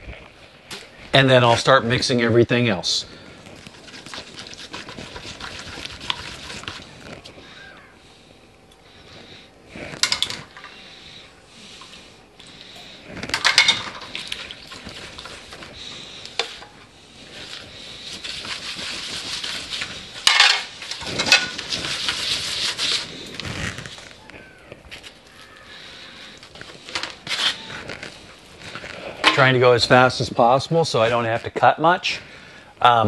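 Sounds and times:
hands squishing meat mixture: 3.3s - 7.8s.

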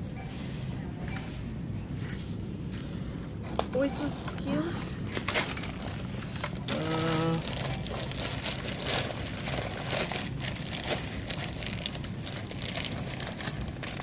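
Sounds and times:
plastic bag crinkling: 4.7s - 14.0s.

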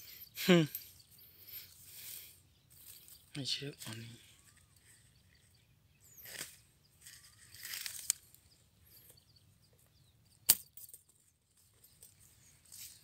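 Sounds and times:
dry straw rustling: 6.2s - 8.4s, 12.1s - 13.0s.

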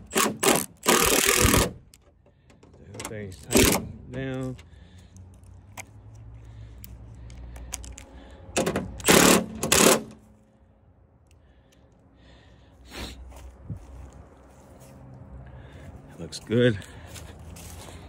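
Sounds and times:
cordless drill running: 0.0s - 1.7s.

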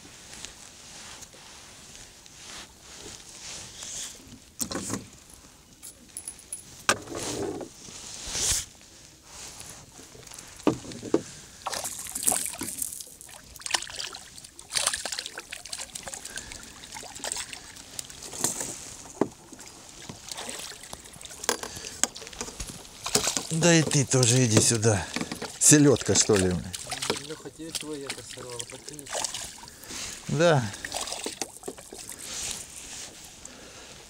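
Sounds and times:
tackle and net knocking on boat: 10.6s - 11.2s
fish splashing at water surface: 11.6s - 24.0s, 24.6s - 32.8s.

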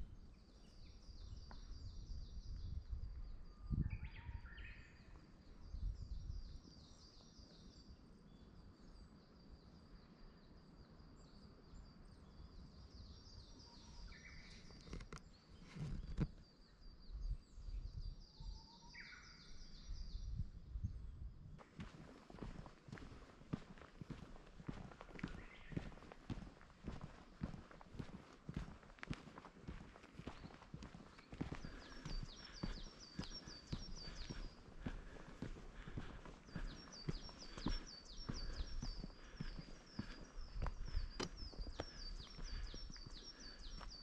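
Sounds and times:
footsteps on a path: 21.6s - 44.0s.

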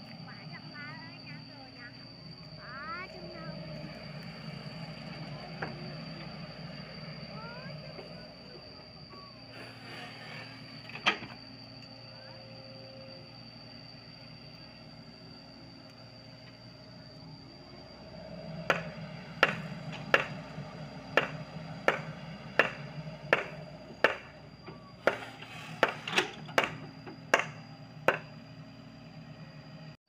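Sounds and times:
mini excavator running: 0.0s - 30.0s
sharp knocks: 18.7s - 20.4s, 21.2s - 24.3s, 25.0s - 28.3s.

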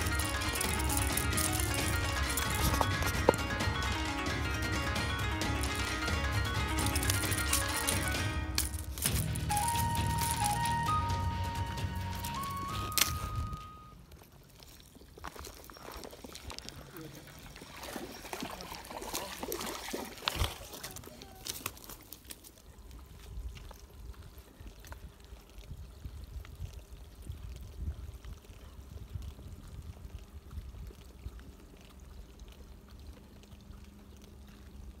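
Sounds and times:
water trickling: 0.0s - 35.0s
fish splashing in water: 14.2s - 35.0s.

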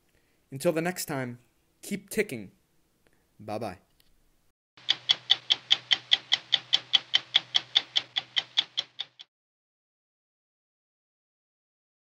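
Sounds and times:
watch ticking fast: 4.8s - 9.3s.

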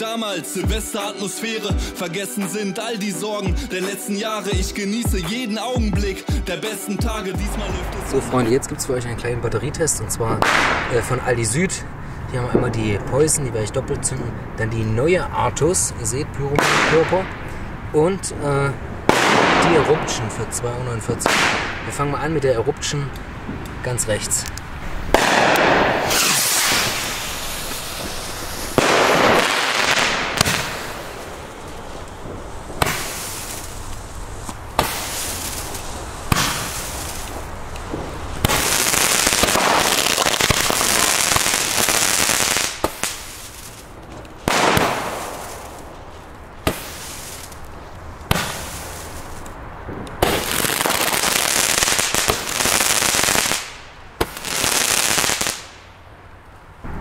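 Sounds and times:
firework shots banging: 10.4s - 11.2s, 16.6s - 17.6s, 19.1s - 20.2s, 21.2s - 22.0s, 25.1s - 55.8s
hissing sparks: 25.1s - 49.6s, 50.2s - 55.8s.

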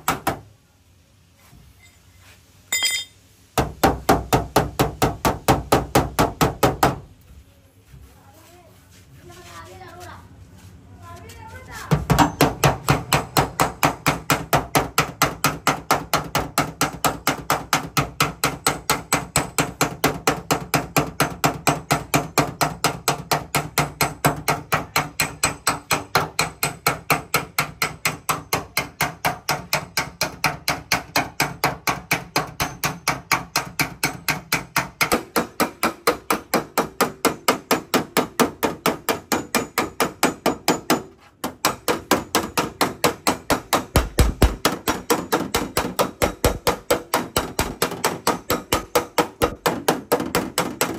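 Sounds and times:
hammer blows on sheet metal: 11.9s - 50.9s.

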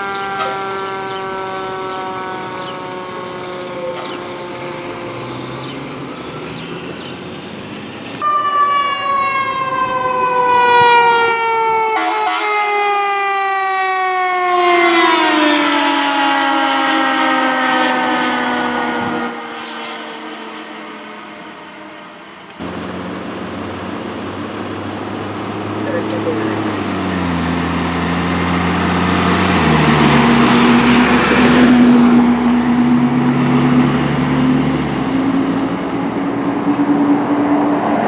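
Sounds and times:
fire truck siren wailing: 0.0s - 38.0s
road noise of passing truck: 0.0s - 38.0s
mechanical siren winding down: 8.2s - 21.6s.

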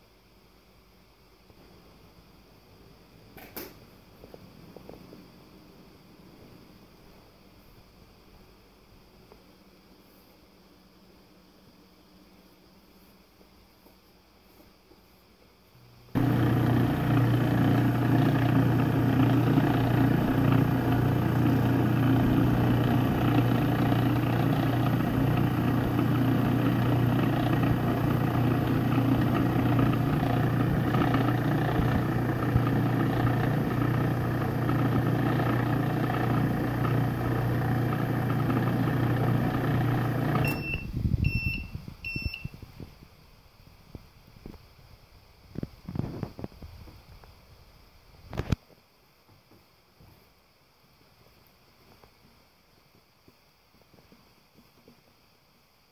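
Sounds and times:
food processor motor running: 16.2s - 40.6s
short electronic beeps: 40.4s - 42.5s.

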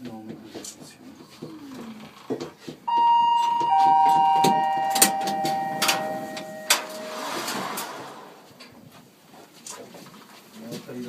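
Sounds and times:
clicks: 2.9s - 7.6s
three-tone electronic chime: 2.9s - 7.8s.

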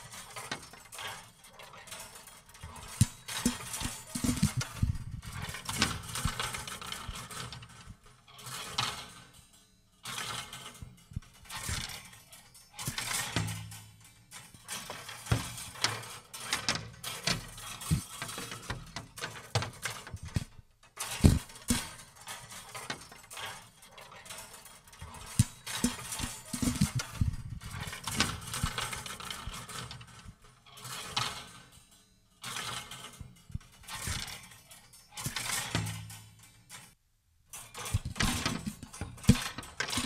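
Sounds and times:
wire coat hangers clattering: 0.0s - 40.0s.

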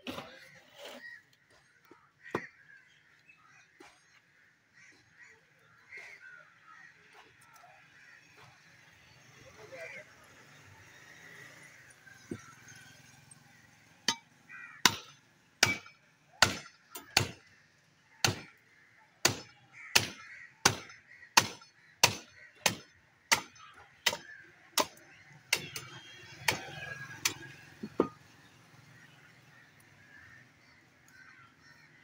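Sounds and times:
cleaver chopping: 14.1s - 17.4s, 18.2s - 18.6s, 19.2s - 28.2s.

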